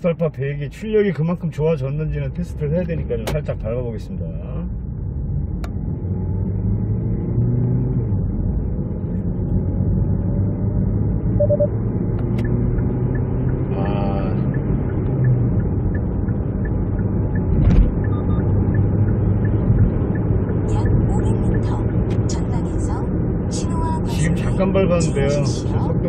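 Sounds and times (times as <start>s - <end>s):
car engine drone: 0.0s - 26.0s
road noise: 0.0s - 26.0s
faint regular ticking: 12.2s - 22.3s.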